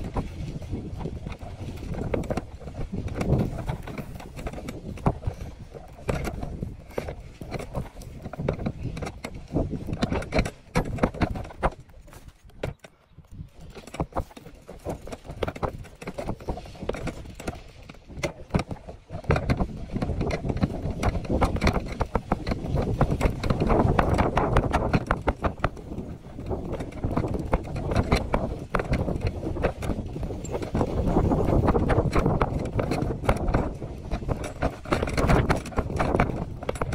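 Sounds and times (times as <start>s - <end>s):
bicycle rattling knocks: 0.0s - 36.9s.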